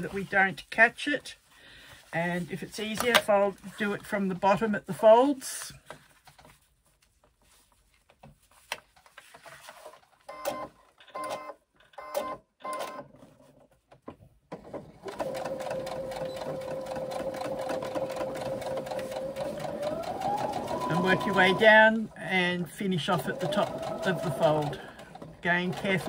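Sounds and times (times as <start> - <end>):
electric sewing machine stitching: 14.5 - 22.1, 22.8 - 26.0.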